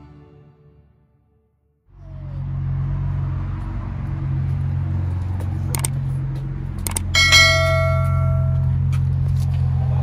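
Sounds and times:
quick clicks: 0:05.7 - 0:06.0, 0:06.8 - 0:07.1
steady low hum: 0:05.7 - 0:08.9
bell ding: 0:07.0 - 0:08.8.

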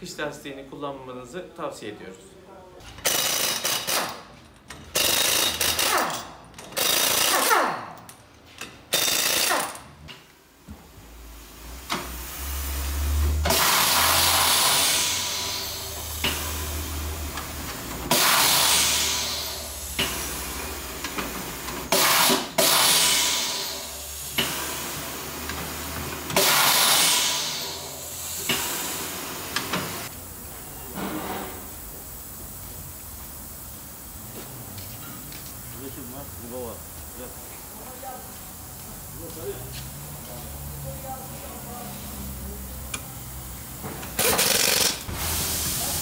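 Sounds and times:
pneumatic impact wrench bursts: 0:03.0 - 0:08.1, 0:08.7 - 0:09.9, 0:11.8 - 0:30.1, 0:42.9 - 0:46.0.

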